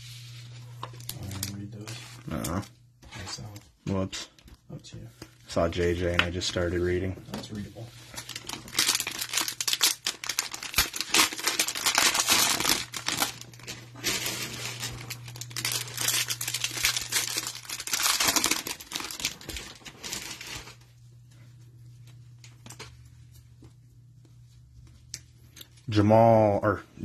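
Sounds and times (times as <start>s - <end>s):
low steady hum: 0.0s - 27.0s
plastic wrapper tearing and crinkling: 0.9s - 2.6s, 8.1s - 20.8s.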